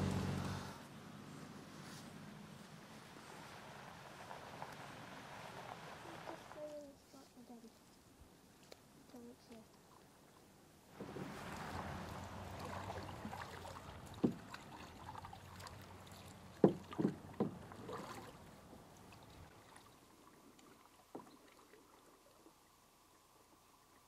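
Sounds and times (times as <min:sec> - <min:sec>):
paddles dipping in water: 0:02.8 - 0:07.3, 0:08.4 - 0:24.0
paddle knocking canoe side: 0:11.0 - 0:18.4.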